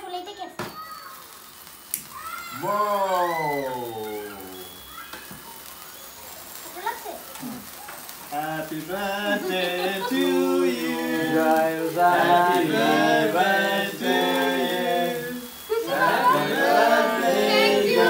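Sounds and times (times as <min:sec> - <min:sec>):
group singing unaccompanied: 0:08.3 - 0:18.0.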